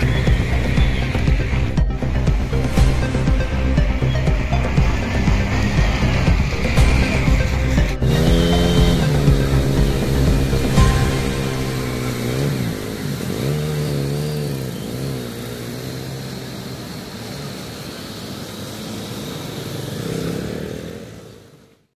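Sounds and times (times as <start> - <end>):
tyres churning water: 0.0 - 21.6
small engines revving: 0.0 - 21.9.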